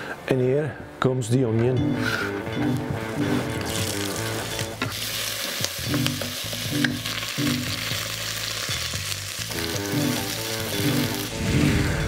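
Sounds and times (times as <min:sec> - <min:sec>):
onion sizzling in hot oil: 0:03.3 - 0:11.4.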